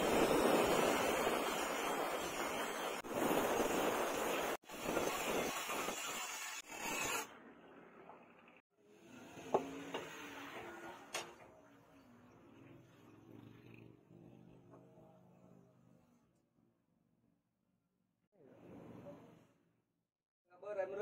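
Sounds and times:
angle grinder grinding metal: 4.8 - 7.3.

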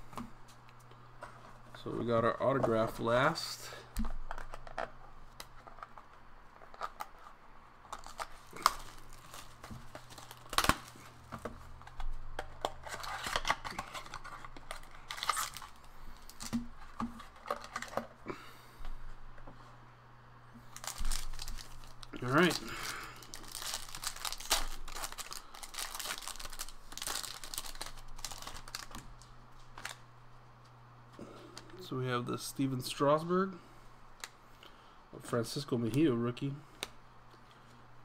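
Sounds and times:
wrapping crinkling and tearing: 4.2 - 18.1, 20.6 - 30.1.

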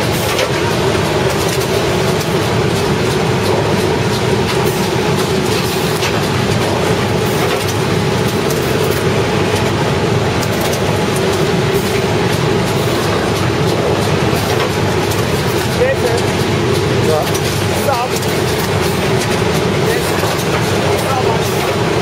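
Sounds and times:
machine hum: 0.0 - 22.0
printing machine clattering: 0.0 - 22.0.

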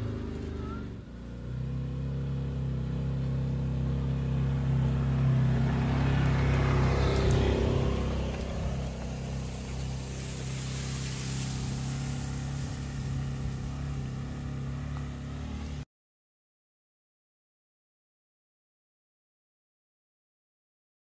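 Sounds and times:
vehicle engine running: 0.0 - 15.8
dragged branches rushing: 6.8 - 14.6.

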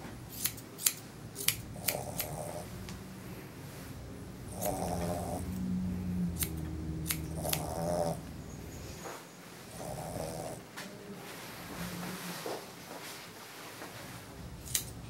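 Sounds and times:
grooming shears snipping: 0.3 - 3.0, 4.5 - 5.6, 6.3 - 8.2, 14.6 - 15.0
small dog grunting: 1.7 - 2.8, 4.5 - 8.3, 9.7 - 10.7
low hum: 2.5 - 9.5.

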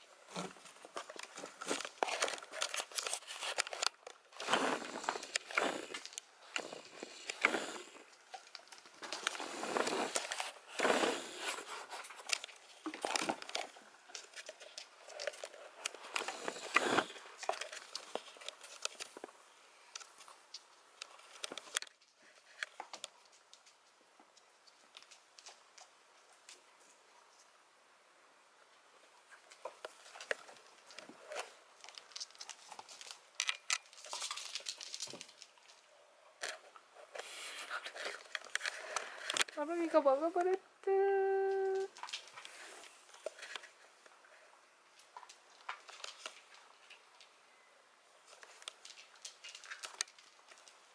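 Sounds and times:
rustling: 0.0 - 27.7, 29.0 - 50.9
scratchy noise: 9.1 - 12.3.

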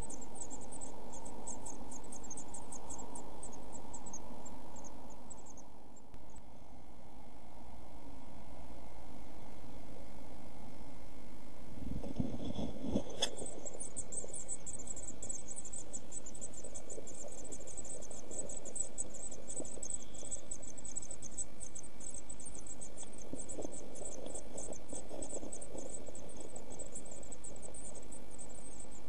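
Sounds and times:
nestlings begging calls: 0.0 - 4.2, 13.2 - 28.9.

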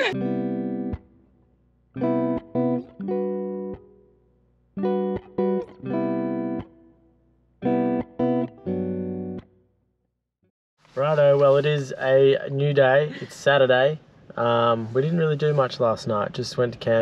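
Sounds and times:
plucked guitar: 0.0 - 9.7.

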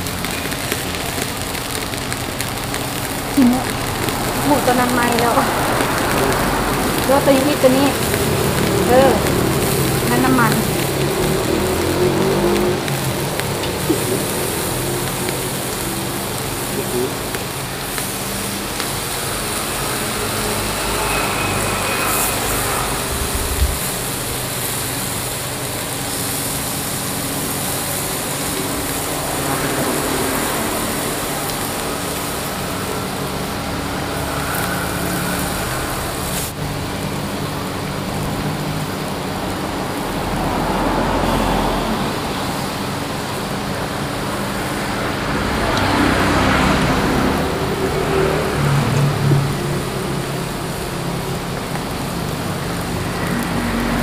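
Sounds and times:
meat sizzling on grill: 0.0 - 54.0
low hum: 20.0 - 25.0.

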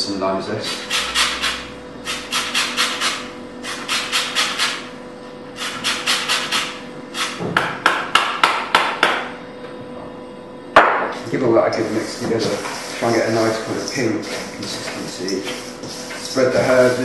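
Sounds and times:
sharp knocks: 7.4 - 9.3
lime rasping on grater: 11.9 - 17.0.

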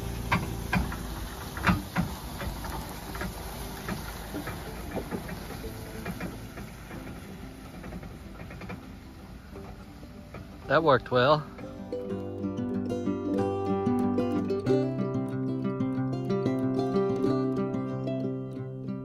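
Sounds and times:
wooden poles dragging over dirt: 0.0 - 14.9
low engine rumble: 0.0 - 19.0.

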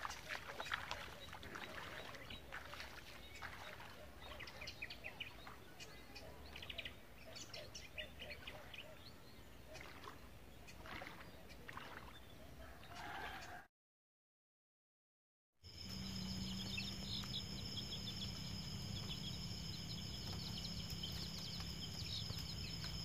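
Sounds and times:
footsteps wading through shallow water: 0.0 - 5.8, 9.6 - 12.6, 15.8 - 23.0.

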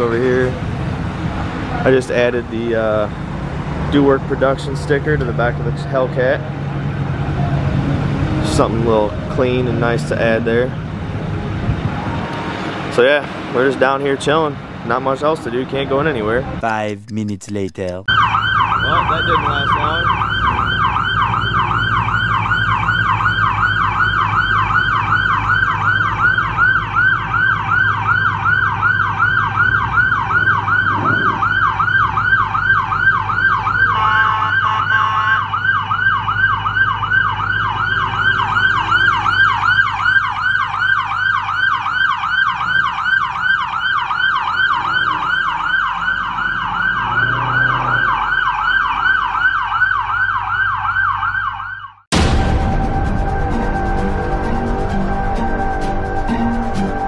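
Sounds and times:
police siren yelping: 18.1 - 52.1.

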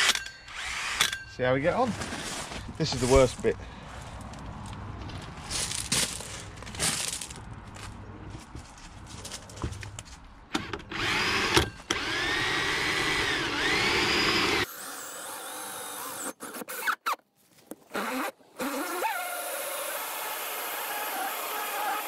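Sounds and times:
cordless drill whining: 0.0 - 1.2, 10.6 - 17.0.

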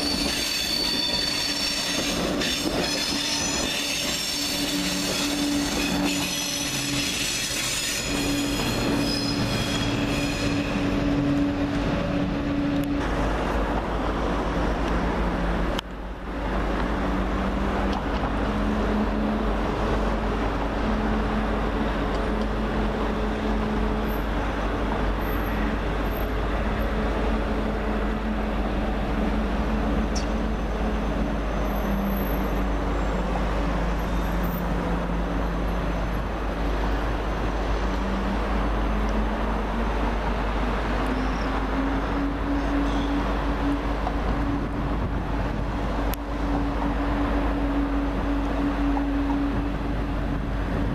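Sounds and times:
train wheels squealing: 0.0 - 11.2, 41.1 - 43.7
train low hum and rumble: 0.0 - 50.9.

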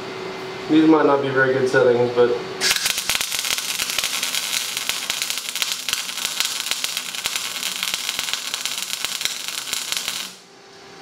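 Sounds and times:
welder arc crackling: 2.6 - 10.5.

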